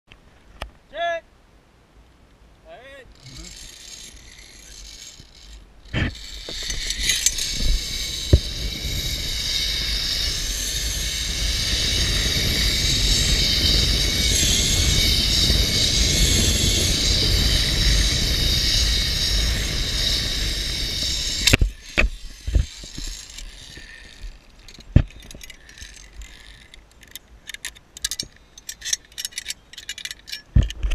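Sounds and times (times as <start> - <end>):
zipline trolley whirring on cable: 3.1 - 30.5
carabiners clicking and clinking: 3.1 - 30.9
low wind rumble: 5.2 - 30.9.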